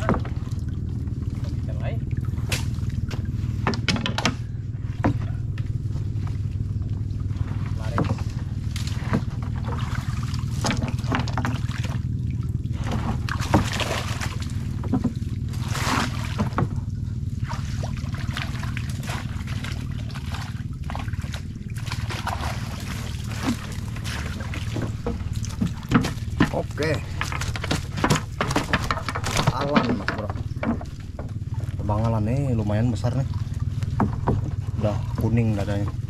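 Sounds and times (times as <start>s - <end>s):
steady low hum: 0.0s - 36.0s
water splashing and trickling: 0.0s - 36.0s
knocks and rattles: 2.5s - 6.4s, 7.3s - 12.1s, 12.8s - 15.6s, 16.2s - 17.0s, 23.2s - 32.2s, 33.6s - 36.0s.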